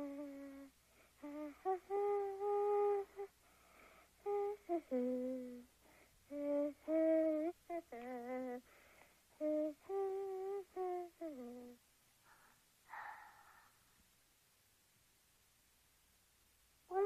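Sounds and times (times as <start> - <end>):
child humming: 0.0 - 3.3, 4.2 - 5.7, 6.3 - 8.7, 9.4 - 11.8
breathy sounds: 12.2 - 14.0.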